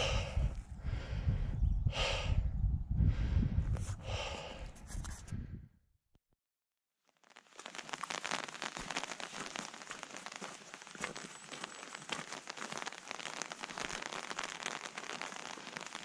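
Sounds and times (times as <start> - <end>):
wind buffeting microphone: 0.0 - 5.7
dense crackling patter: 7.1 - 16.0.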